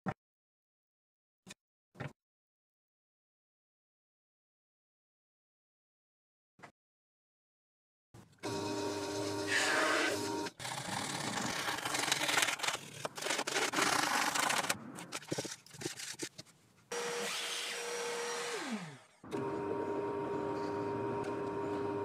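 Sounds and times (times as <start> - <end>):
short scrapes and clicks: 9.8 - 16.6
drill press motor running: 17.9 - 22.0.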